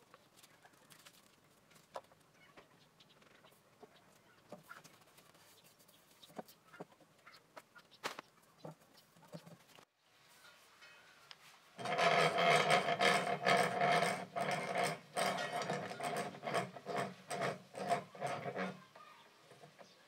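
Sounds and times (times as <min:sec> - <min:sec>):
hand file rasping on steel: 0:11.8 - 0:18.9.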